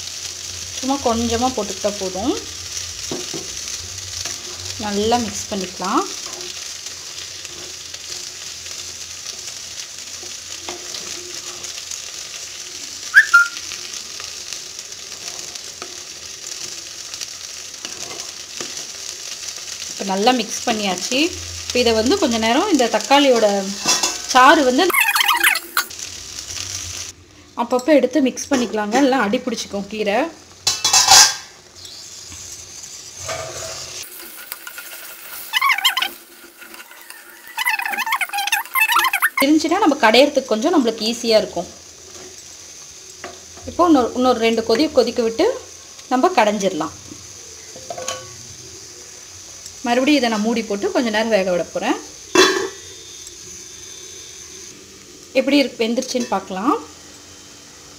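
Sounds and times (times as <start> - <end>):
greens hissing and simmering: 0.0 - 57.9
vegetables sizzling in oil: 0.0 - 57.9
high whistle-like chirp: 13.1 - 13.7
metal lid clanking on pot: 30.7 - 31.5, 52.3 - 52.8.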